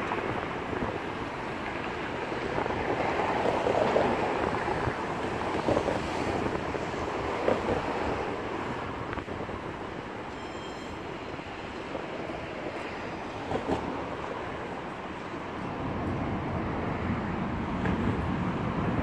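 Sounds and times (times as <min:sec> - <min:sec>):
train wheels rumbling on track: 0:00.0 - 0:19.0
wind on microphone: 0:00.1 - 0:10.1.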